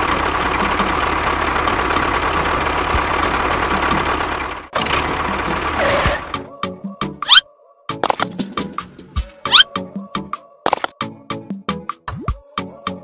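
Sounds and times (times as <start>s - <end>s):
tractor engine running: 0.0s - 6.5s.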